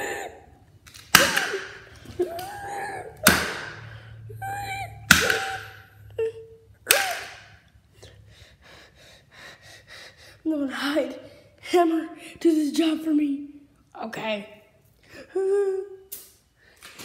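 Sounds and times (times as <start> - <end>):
toys hitting hard floor: 0.9 - 2.6, 3.2 - 3.9, 5.1 - 5.8
child vocal noises: 1.4 - 3.4, 4.2 - 7.4, 15.2 - 16.1.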